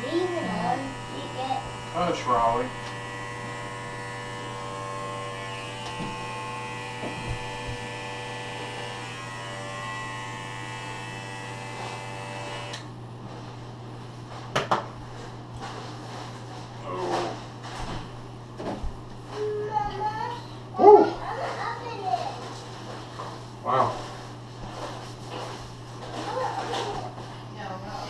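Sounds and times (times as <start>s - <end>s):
electric hair trimmer buzzing: 0.0s - 12.9s.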